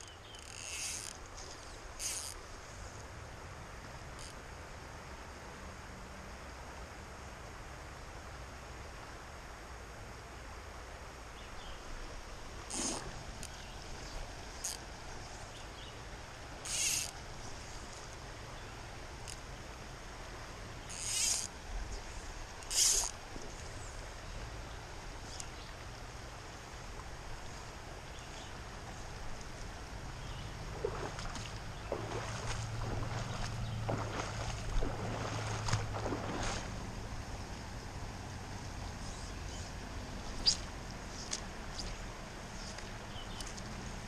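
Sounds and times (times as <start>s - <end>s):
fly line swishing: 0.0s - 2.5s, 12.6s - 14.8s, 16.6s - 18.1s, 20.9s - 23.7s, 39.0s - 43.6s
shallow river hissing: 0.0s - 44.0s
soft water splashes and knocks: 30.4s - 37.0s.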